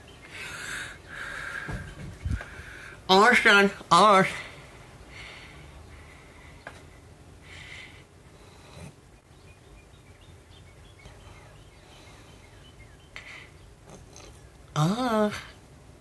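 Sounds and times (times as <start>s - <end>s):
person breathing out: 0.3s - 3.0s.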